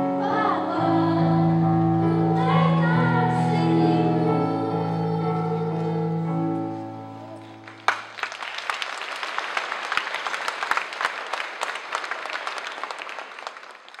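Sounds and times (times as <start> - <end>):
audience applause: 7.3 - 14.0.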